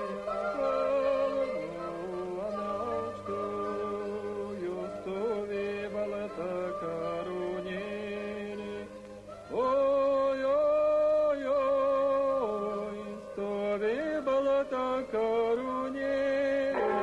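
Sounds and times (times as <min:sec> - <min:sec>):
chant-like singing: 0:00.0 - 0:17.0
low steady drone: 0:16.7 - 0:17.0.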